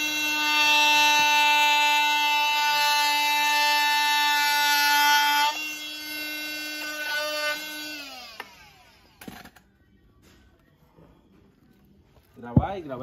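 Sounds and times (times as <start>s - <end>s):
multi-tool cutting wood: 0.0s - 9.6s.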